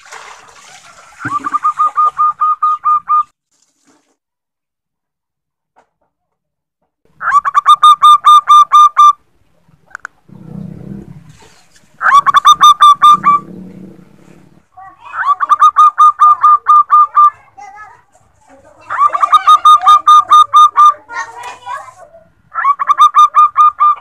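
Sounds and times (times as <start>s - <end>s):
dove calling staccato notes: 1.2s - 3.3s, 7.2s - 9.2s, 12.0s - 13.6s, 15.0s - 17.6s, 18.8s - 21.3s, 22.5s - 24.0s.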